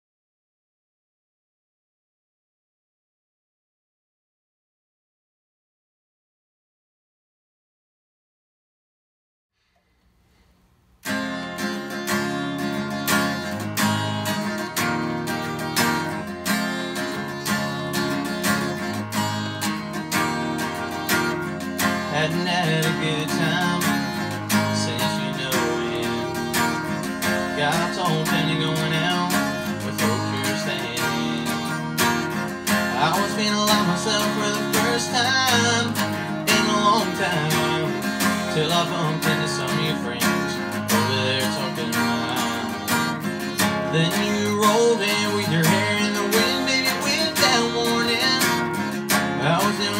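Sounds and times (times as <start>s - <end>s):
acoustic guitar strumming: 11.0s - 49.9s
young man singing: 12.2s - 18.9s, 19.5s - 49.9s.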